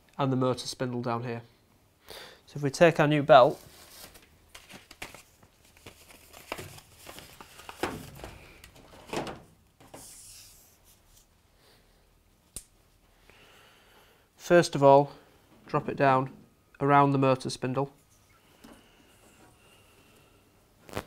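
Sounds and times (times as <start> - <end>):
packaging crinkling and tearing: 3.6 - 9.1.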